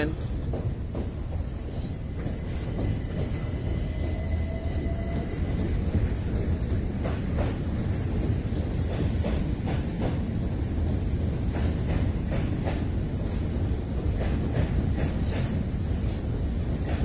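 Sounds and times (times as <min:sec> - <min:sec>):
train rumbling on bridge: 0:00.0 - 0:17.0
wheels clacking over rail joints: 0:00.3 - 0:17.0.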